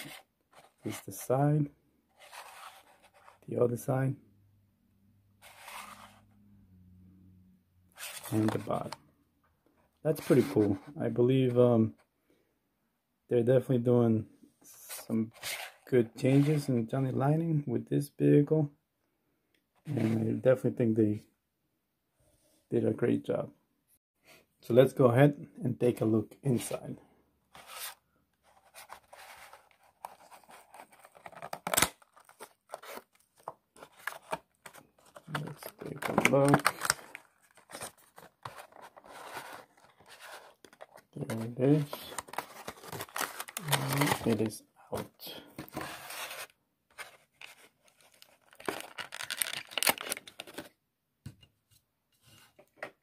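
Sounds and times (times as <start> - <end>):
packaging rustling and scraping: 2.2 - 3.4, 5.4 - 6.3, 8.0 - 9.0, 15.3 - 16.7, 27.5 - 50.8.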